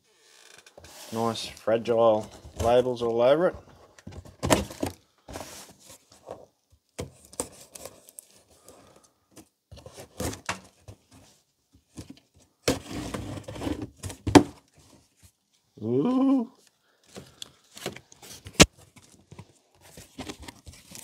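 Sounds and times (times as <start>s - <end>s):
cardboard being handled: 0.8s - 8.5s, 17.2s - 21.0s.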